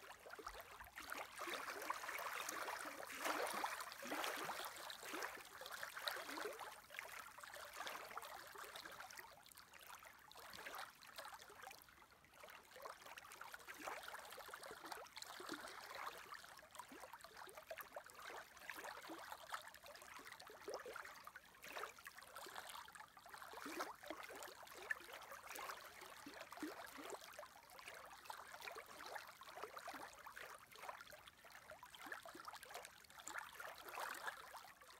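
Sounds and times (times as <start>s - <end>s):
small waves lapping: 0.0s - 9.0s.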